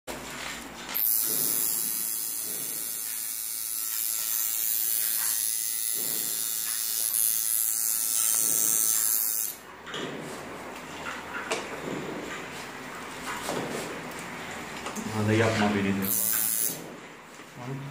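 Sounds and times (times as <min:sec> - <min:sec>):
tattoo machine buzzing: 0:00.9 - 0:09.6, 0:16.0 - 0:16.9.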